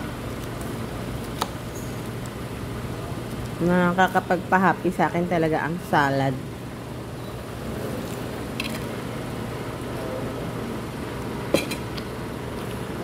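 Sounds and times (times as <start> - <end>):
room hum: 0.0 - 13.0
murmur of distant voices: 9.8 - 10.7
tableware clink: 11.5 - 11.9.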